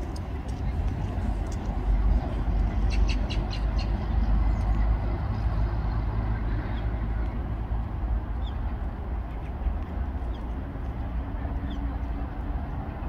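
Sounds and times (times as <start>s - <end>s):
city traffic rumble: 0.0s - 13.0s.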